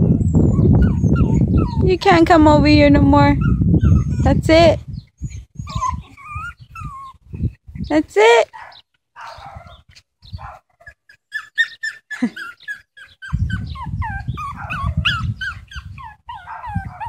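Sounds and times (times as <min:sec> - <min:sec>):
small dog whining and yelping: 0:00.0 - 0:01.9, 0:03.4 - 0:04.4, 0:05.2 - 0:07.5, 0:10.3 - 0:17.0.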